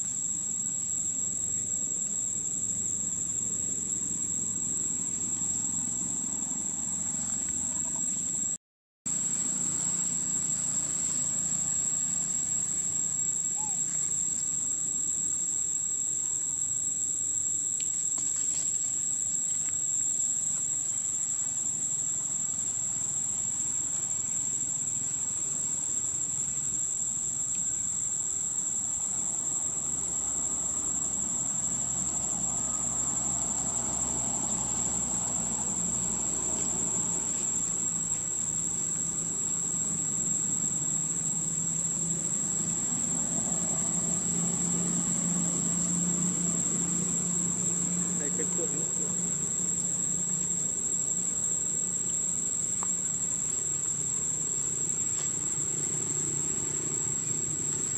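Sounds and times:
insects droning: 0.0s - 57.9s.

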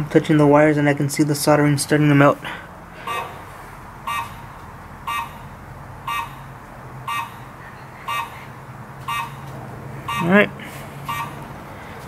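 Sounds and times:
steady low hum: 0.0s - 12.0s
electronic beeps: 3.0s - 3.5s.

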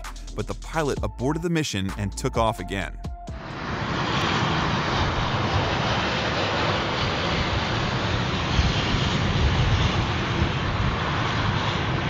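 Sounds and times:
jet engine noise: 3.3s - 12.0s
wind buffeting microphone: 3.6s - 12.0s.

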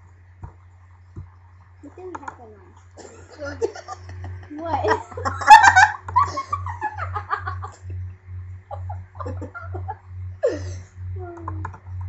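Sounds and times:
person laughing and giggling: 3.0s - 8.1s, 8.7s - 11.6s.

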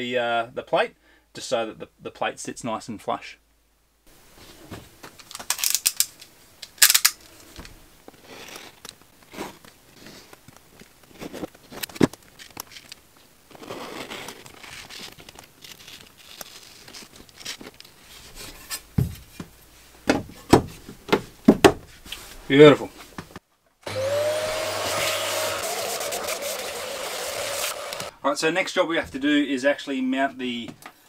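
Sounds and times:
vinyl crinkling and tearing: 8.1s - 18.4s
utility knife cutting vinyl: 23.9s - 28.1s.

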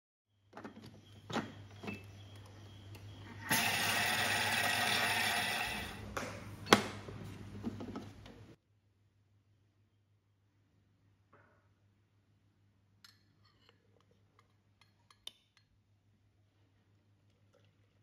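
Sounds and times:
food processor motor and blades running: 3.4s - 6.2s.

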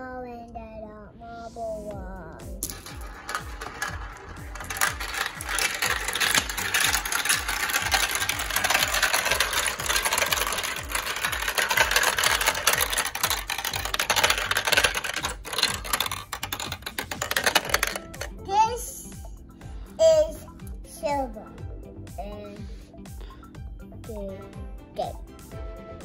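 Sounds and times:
marbles rattling down plastic run: 2.6s - 18.4s.

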